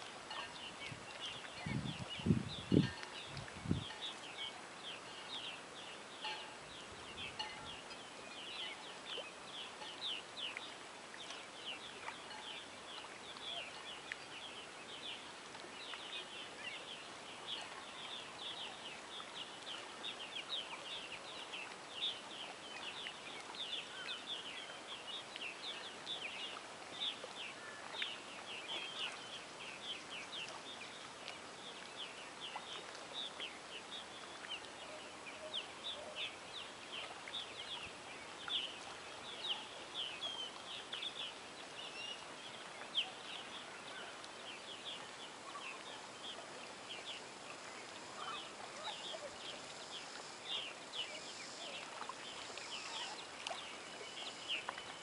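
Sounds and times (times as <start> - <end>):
faint outdoor hiss: 0.0 - 55.0
birds chirping: 0.3 - 55.0.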